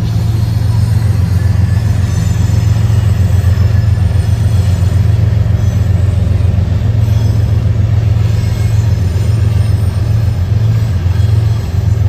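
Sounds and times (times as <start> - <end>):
diesel locomotive engine drone: 0.0 - 12.0.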